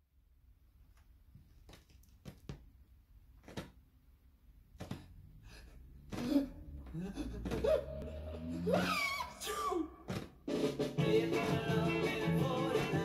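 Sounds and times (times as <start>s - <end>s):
record music: 7.4s - 13.0s.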